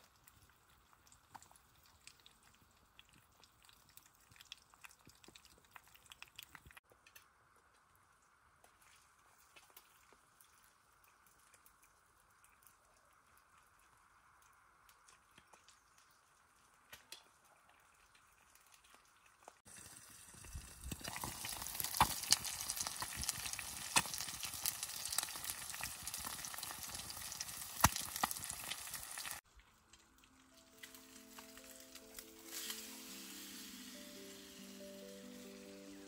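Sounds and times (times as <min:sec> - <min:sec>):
food sizzling in a pan: 0:19.7 - 0:29.4, 0:30.6 - 0:36.0
faint hiss: 0:30.6 - 0:36.0.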